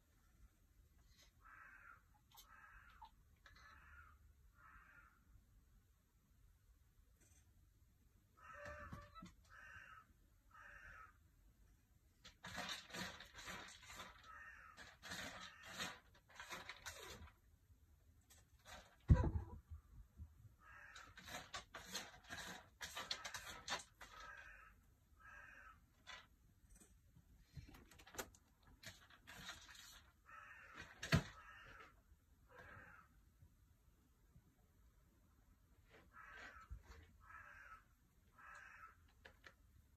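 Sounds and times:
crows cawing: 0:01.4 - 0:05.3, 0:08.4 - 0:11.2, 0:14.0 - 0:16.0, 0:20.6 - 0:21.3, 0:24.0 - 0:25.8, 0:30.2 - 0:33.2, 0:36.0 - 0:39.1.

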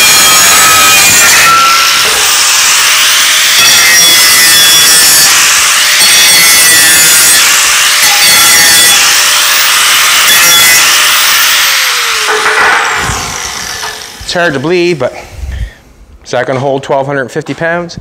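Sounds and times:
angle grinder cutting metal: 0:00.0 - 0:15.2.

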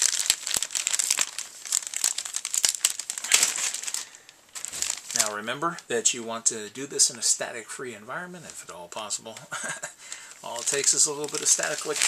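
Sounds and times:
plastic bag crinkling: 0:00.0 - 0:05.8, 0:09.6 - 0:12.0.

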